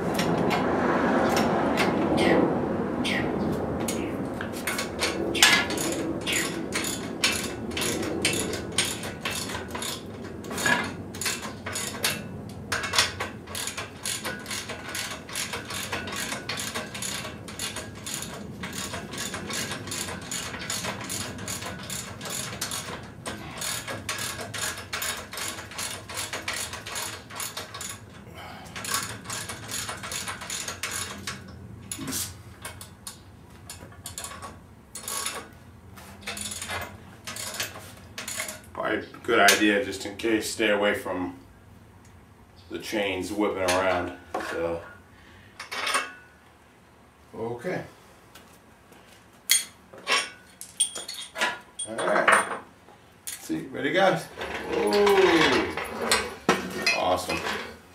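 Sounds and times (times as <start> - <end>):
ratchet wrench clicking: 4.7 - 10.0, 12.8 - 28.1, 28.8 - 32.0.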